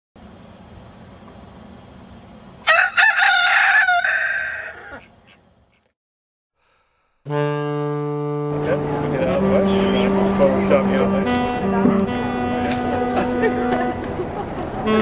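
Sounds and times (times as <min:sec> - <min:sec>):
rooster crowing: 0:02.6 - 0:05.1.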